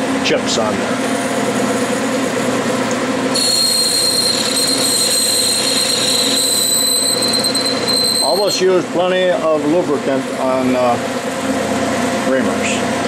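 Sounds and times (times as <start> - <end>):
metal lathe running: 0.0 - 13.0
high steady squeal of reamer: 3.2 - 8.8.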